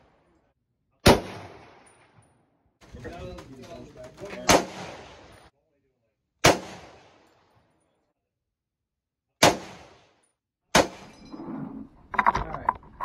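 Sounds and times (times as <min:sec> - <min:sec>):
rifle shots with echo: 0:01.0 - 0:02.1, 0:04.4 - 0:05.4, 0:06.4 - 0:07.4, 0:09.4 - 0:11.1.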